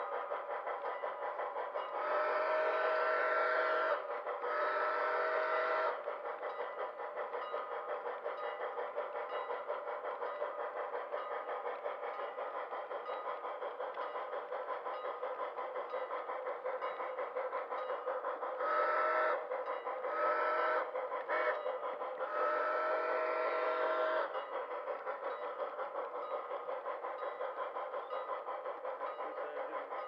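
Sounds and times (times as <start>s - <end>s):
model train wheels clicking: 0.0s - 30.0s
model steam whistle blasts: 2.0s - 6.0s, 18.6s - 19.4s, 20.1s - 21.6s, 22.3s - 24.3s.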